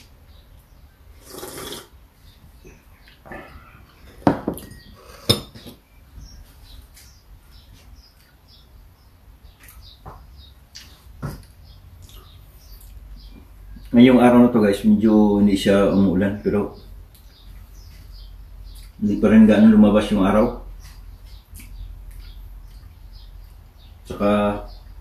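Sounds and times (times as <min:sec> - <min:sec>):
dishes clinking: 0:04.1 - 0:05.8.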